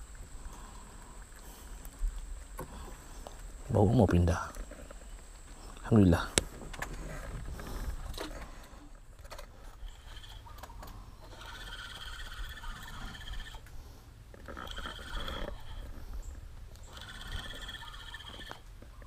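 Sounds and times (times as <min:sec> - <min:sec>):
high-pitched animal calls: 0:09.8 - 0:13.6, 0:14.5 - 0:16.0, 0:16.8 - 0:18.6.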